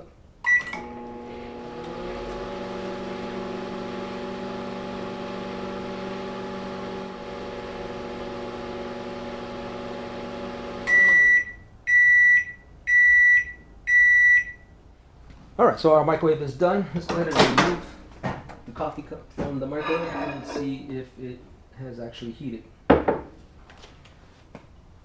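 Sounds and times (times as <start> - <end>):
microwave beeps: 0.4 - 1.1, 10.8 - 14.8
microwave oven humming: 0.5 - 11.6.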